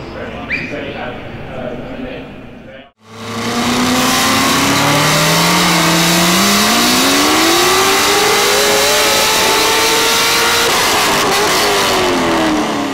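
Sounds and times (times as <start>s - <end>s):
car engine revving: 3.0s - 12.9s.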